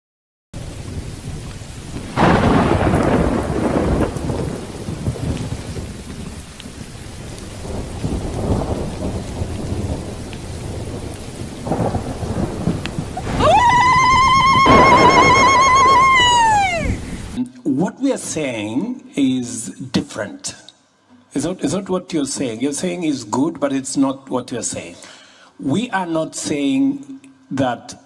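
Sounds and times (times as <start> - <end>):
loud thunderclap: 0.6 - 17.4
rolling thunder: 0.6 - 17.4
rain: 0.6 - 28.0
wavering high tone: 14.4 - 16.8.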